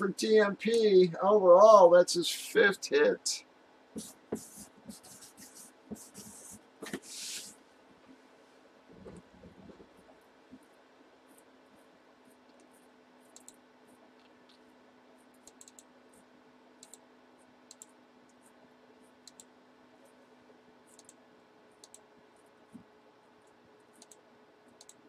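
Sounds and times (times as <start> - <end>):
low steady hum: 0.0 - 25.0
computer mouse and keyboard clicks: 12.4 - 14.7, 15.3 - 15.9, 17.7 - 18.4, 20.9 - 21.2, 22.7 - 25.0.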